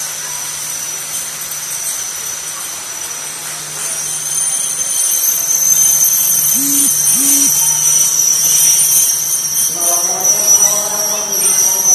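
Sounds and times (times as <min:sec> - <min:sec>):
low hum: 0:00.0 - 0:11.9
train wheels squealing: 0:00.0 - 0:11.9.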